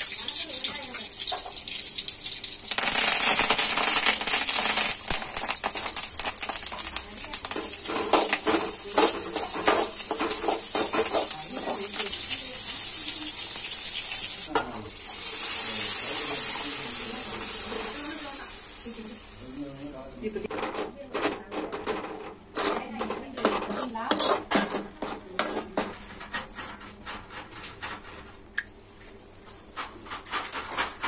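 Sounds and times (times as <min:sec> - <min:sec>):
liquid hissing in hot pan: 0:00.0 - 0:20.4
leaves sizzling in hot oil: 0:00.0 - 0:20.5
onions frying: 0:00.0 - 0:20.5
metal spatula scraping a pan: 0:07.4 - 0:12.7, 0:21.7 - 0:28.3, 0:29.8 - 0:31.0.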